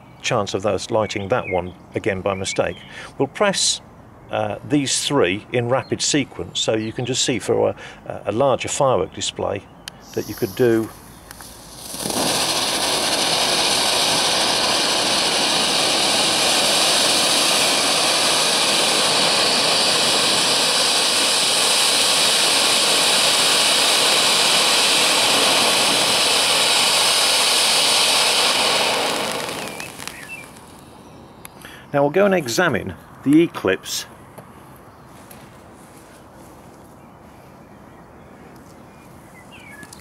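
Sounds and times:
fireworks hissing: 0:09.9 - 0:30.9.

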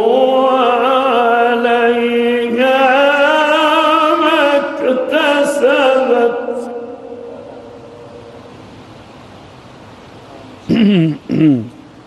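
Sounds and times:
man reciting melodically: 0:00.0 - 0:07.4.

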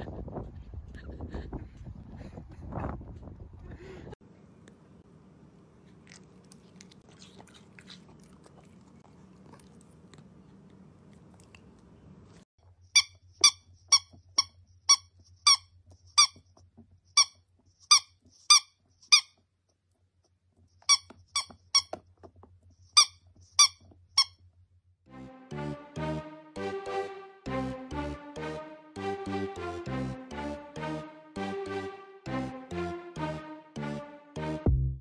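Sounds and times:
squeaky toy squeaking: 0:13.0 - 0:16.4, 0:17.2 - 0:19.4, 0:20.8 - 0:22.0, 0:22.9 - 0:24.4.

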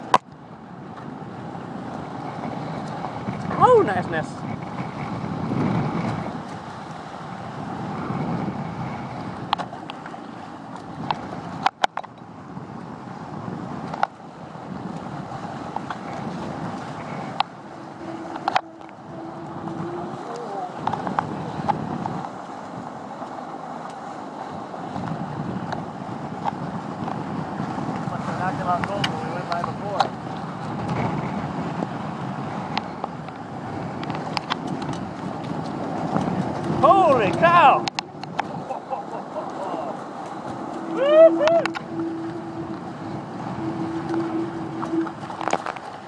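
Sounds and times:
water rushing along a hull: 0:00.0 - 0:46.0
wind buffeting the microphone: 0:00.0 - 0:46.0.

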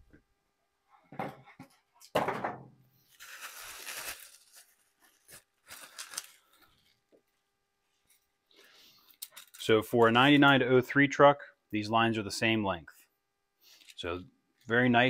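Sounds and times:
plastic bag crinkling: 0:03.0 - 0:07.2, 0:09.1 - 0:10.2.

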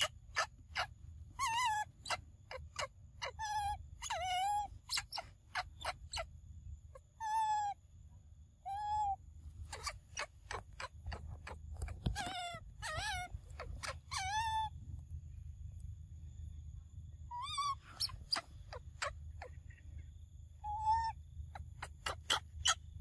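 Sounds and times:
baby monkey coo calls: 0:00.0 - 0:06.3, 0:06.9 - 0:07.8, 0:08.6 - 0:14.8, 0:17.3 - 0:19.8, 0:20.6 - 0:23.0.

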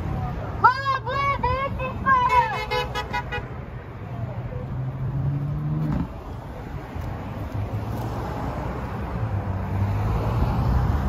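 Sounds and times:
cars passing on road: 0:00.0 - 0:11.0
car horn: 0:02.0 - 0:03.6.

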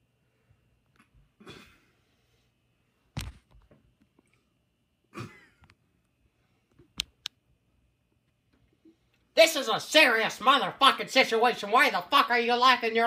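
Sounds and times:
sharp clicks: 0:07.0 - 0:07.4.

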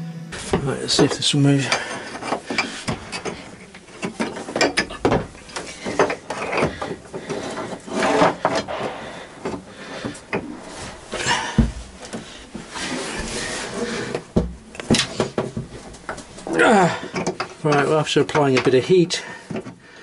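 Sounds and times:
heavy thump: 0:00.4 - 0:00.8, 0:08.5 - 0:13.4, 0:14.2 - 0:16.2
pipe wrench scraping and knocking: 0:00.4 - 0:19.8.

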